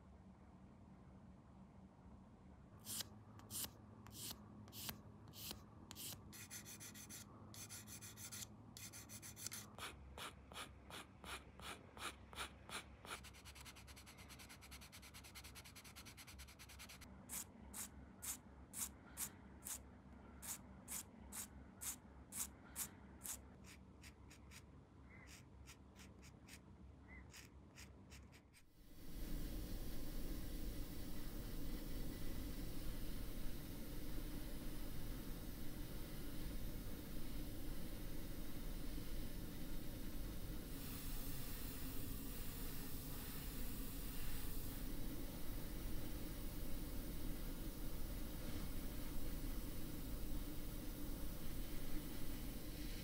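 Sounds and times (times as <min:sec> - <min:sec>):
hand tool rubbing plastic: 0:27.2 - 0:28.7.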